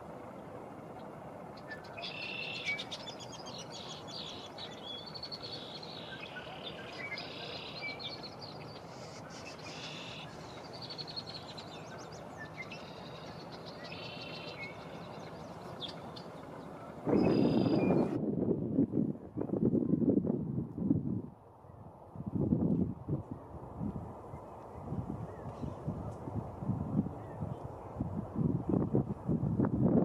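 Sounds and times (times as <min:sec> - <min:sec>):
songbirds chirping and trilling: 0:01.0 - 0:18.2.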